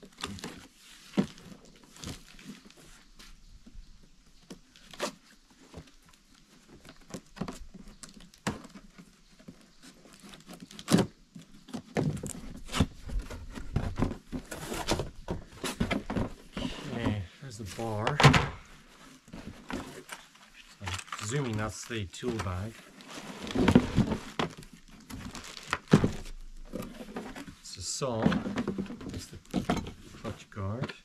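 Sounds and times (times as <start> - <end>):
cardboard box rustling: 4.8 - 30.8.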